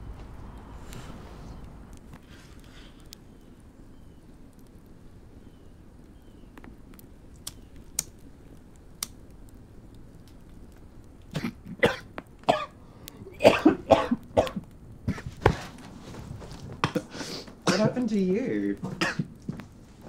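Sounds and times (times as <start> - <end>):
person coughing harshly: 11.4 - 12.8, 13.4 - 14.6, 17.7 - 18.0, 18.9 - 19.3.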